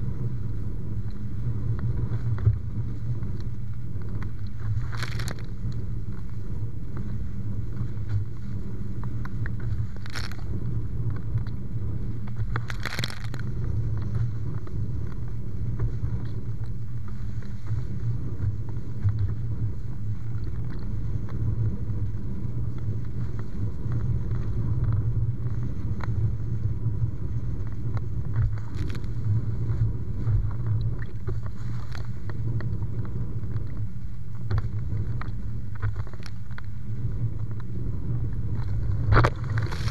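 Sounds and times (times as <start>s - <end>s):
wind and water rushing: 4.6s - 6.2s, 37.8s - 39.9s.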